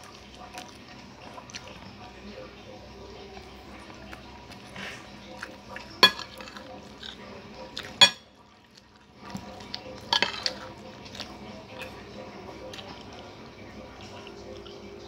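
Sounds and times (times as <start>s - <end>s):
metal spoon clinking on a plate: 5.9s - 7.2s, 7.8s - 8.4s, 10.0s - 10.7s.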